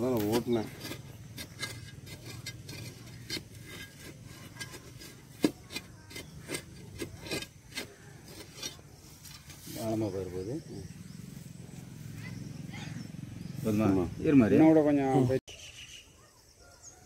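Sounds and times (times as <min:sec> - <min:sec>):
digging stick scraping into soil: 0:00.0 - 0:10.1.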